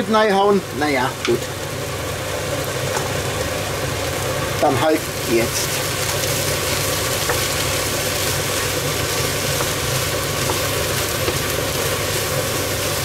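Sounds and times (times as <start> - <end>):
food sizzling in a pan: 0.0 - 13.0
spatula stirring: 5.3 - 13.0.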